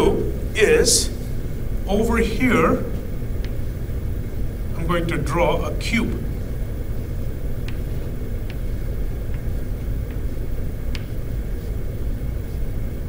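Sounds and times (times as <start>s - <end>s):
low room rumble: 0.0s - 13.0s
chalk tapping on blackboard: 7.6s - 11.8s.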